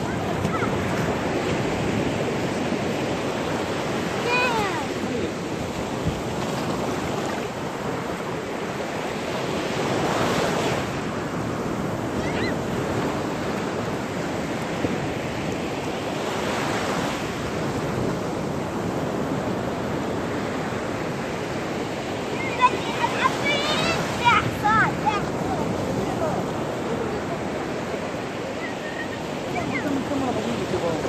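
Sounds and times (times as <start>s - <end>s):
small waves washing on sand: 0.0s - 31.0s.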